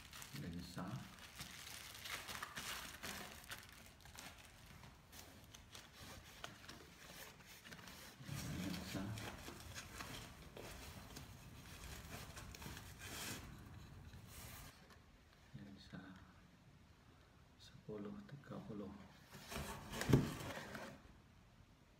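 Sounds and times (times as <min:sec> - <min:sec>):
bubble wrap crinkling: 0:00.0 - 0:14.8.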